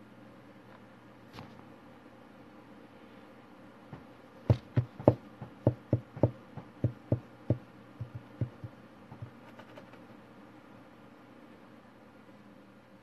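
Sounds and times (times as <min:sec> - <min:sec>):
dull knocks on hard surface: 0:04.5 - 0:09.3.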